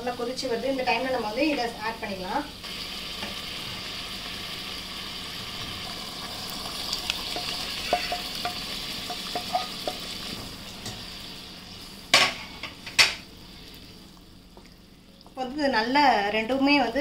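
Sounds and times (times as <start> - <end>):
curry bubbling and sizzling in pan: 2.6 - 15.4
spatula tapping against pan: 7.4 - 10.0.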